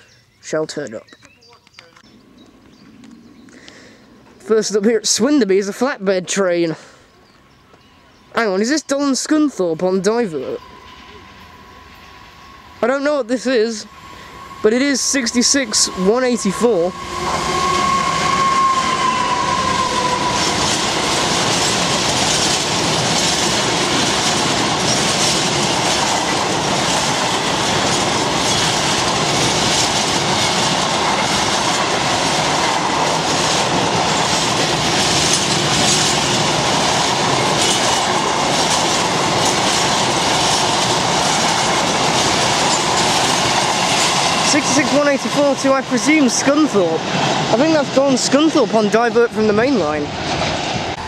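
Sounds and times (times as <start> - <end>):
diesel locomotive passing: 1.8 - 51.0
high whine: 7.4 - 51.0
train wheels clattering on rails: 14.3 - 51.0.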